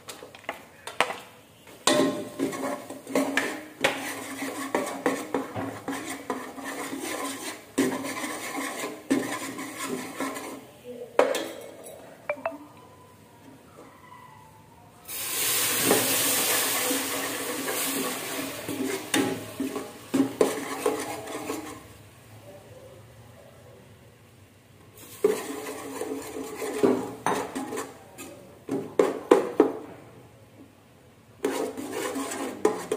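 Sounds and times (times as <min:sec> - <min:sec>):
ladle stirring and scraping pot: 0:01.8 - 0:10.8, 0:15.8 - 0:22.0, 0:25.0 - 0:29.4, 0:31.4 - 0:32.9
loud sizzling hiss: 0:15.1 - 0:19.5.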